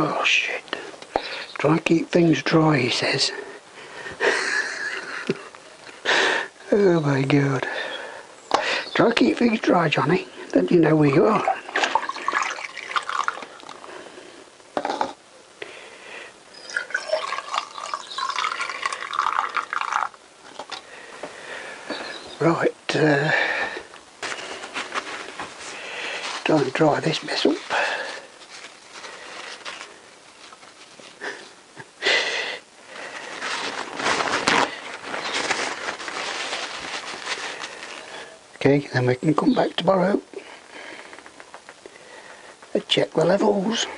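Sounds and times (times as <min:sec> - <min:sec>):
fluid trickling and gurgling: 0:11.3 - 0:13.9, 0:16.6 - 0:20.8.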